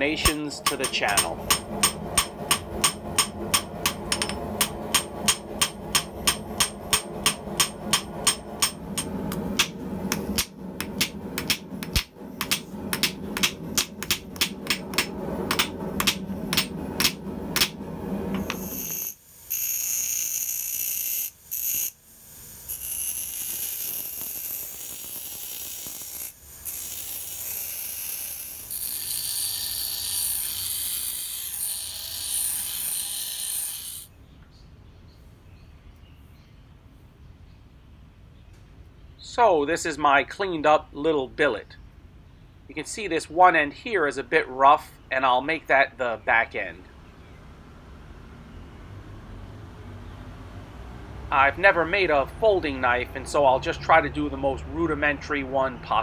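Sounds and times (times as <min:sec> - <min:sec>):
steady hum: 0:00.0 - 0:19.6
bench grinder grinding steel: 0:00.0 - 0:34.1
hammer blows on steel: 0:00.2 - 0:17.8.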